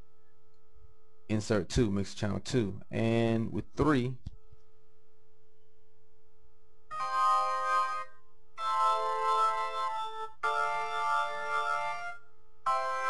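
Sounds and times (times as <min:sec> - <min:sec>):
organ chords: 0:06.9 - 0:13.0.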